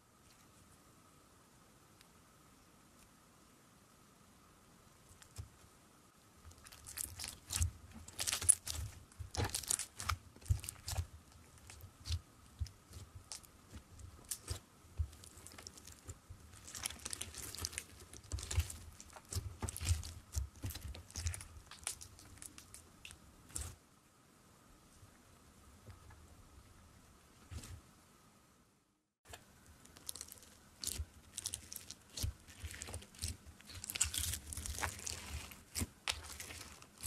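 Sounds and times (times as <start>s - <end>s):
beaded slime crackling and squishing: 6.4s - 23.8s, 29.7s - 37.0s.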